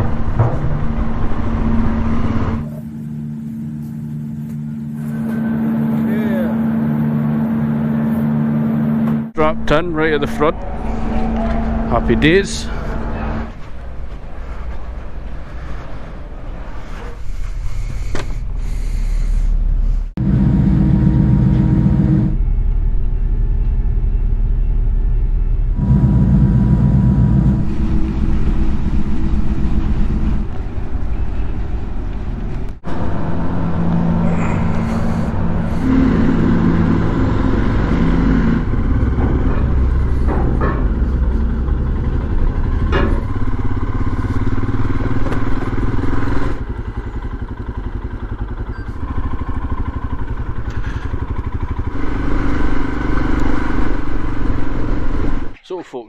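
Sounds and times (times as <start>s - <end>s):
motorcycle engine revving: 4.6s - 14.6s, 25.8s - 55.6s.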